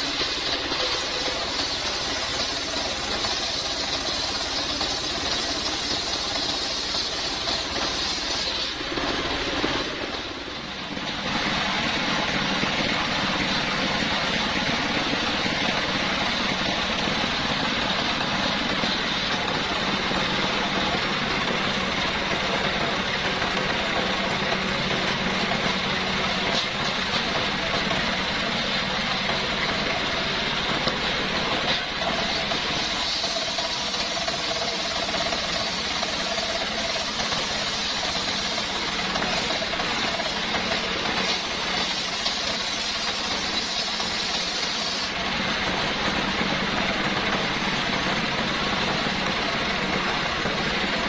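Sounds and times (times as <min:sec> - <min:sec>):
single-cylinder engine running: 0:00.0 - 0:51.0.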